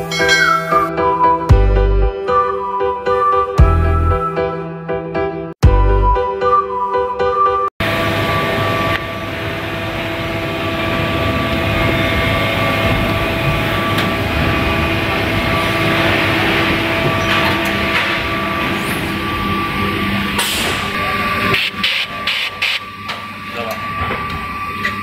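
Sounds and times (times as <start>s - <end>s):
factory machinery hum: 7.8s - 25.0s.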